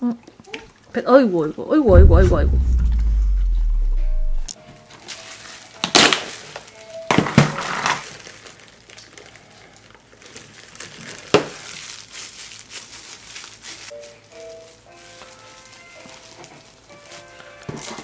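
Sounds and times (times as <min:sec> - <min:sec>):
plastic gloves crinkling: 0:08.1 - 0:17.2
soft background music: 0:13.9 - 0:18.0.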